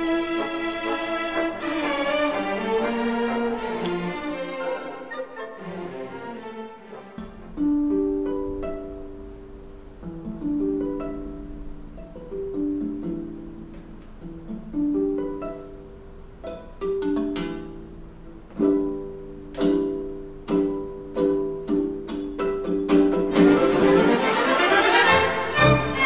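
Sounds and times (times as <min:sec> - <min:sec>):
acoustic guitar melody: 0:07.2 - 0:26.0.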